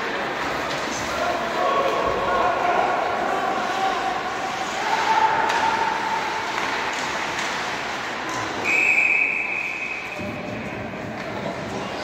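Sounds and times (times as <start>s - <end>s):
ice rink noise: 0.0s - 12.0s
referee's whistle blast: 8.6s - 10.3s.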